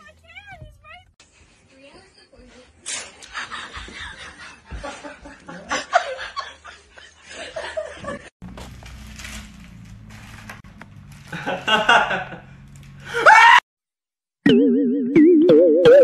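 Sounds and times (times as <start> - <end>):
speech: 1.7 - 3.0
aluminium foil crinkling: 8.5 - 11.6.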